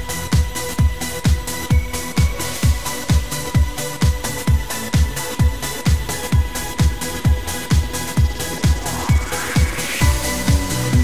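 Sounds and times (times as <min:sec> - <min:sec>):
electronic dance music: 0:00.0 - 0:11.0
steady kick drum: 0:00.0 - 0:11.0.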